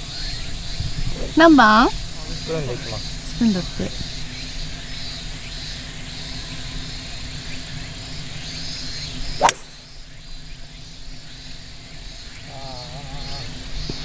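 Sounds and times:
golf club striking ball: 9.3 - 10.0.

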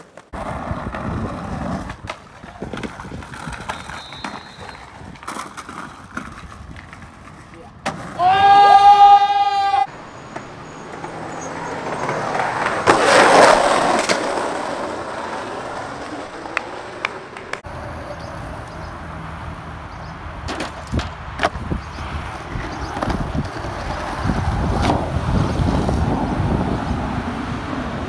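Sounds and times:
skateboard clacking on ground: 0.0 - 8.3, 10.3 - 18.8, 20.4 - 26.0
skateboard wheels rolling on concrete: 0.0 - 28.0.

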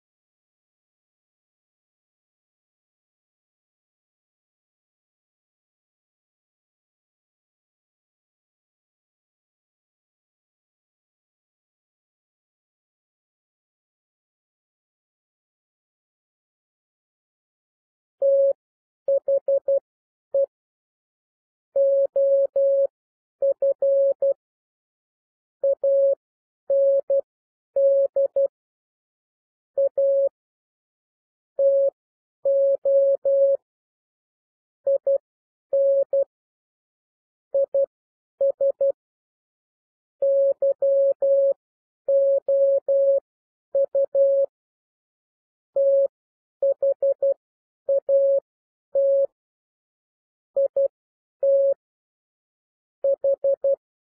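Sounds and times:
morse code tone: 35.8 - 36.2, 40.2 - 41.5, 42.1 - 43.2.

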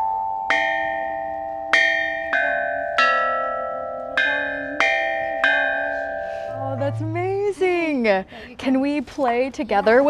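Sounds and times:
bronze chime bells ringing: 0.0 - 7.9.

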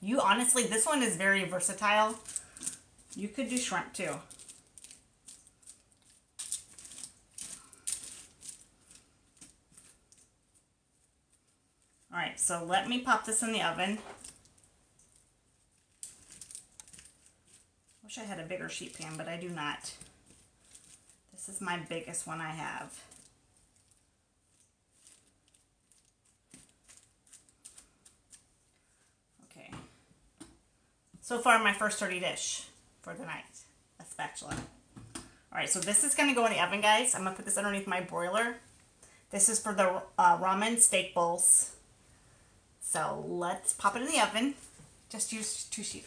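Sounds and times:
foil crinkling: 1.7 - 12.1, 13.4 - 22.0, 22.6 - 29.2.

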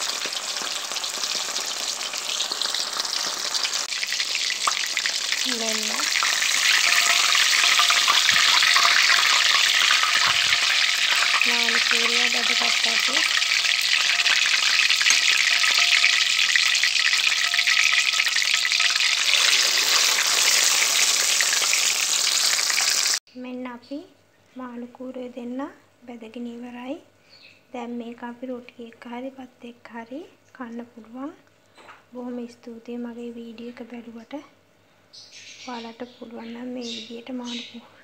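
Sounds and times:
fish frying in hot oil: 0.0 - 23.2.

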